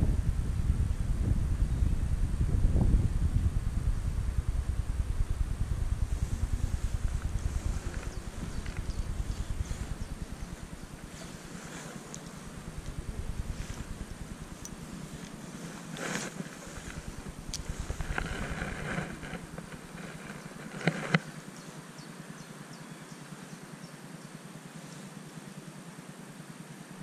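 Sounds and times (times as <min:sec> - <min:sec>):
low rumble: 0:00.0 - 0:20.8
fishing reel ticks and rustles: 0:06.4 - 0:21.3.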